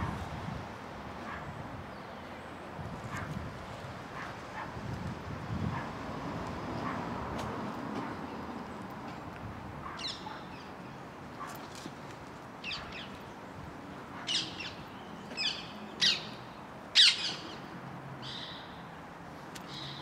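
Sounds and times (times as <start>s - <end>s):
outdoor background noise: 0.0s - 20.0s
birds calling: 9.8s - 10.9s, 14.0s - 18.7s.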